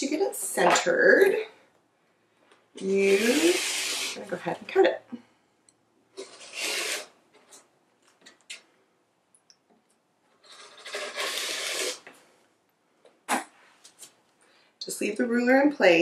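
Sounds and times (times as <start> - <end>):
rotary cutter cutting fabric: 2.8 - 4.3, 6.2 - 7.1, 10.5 - 12.1.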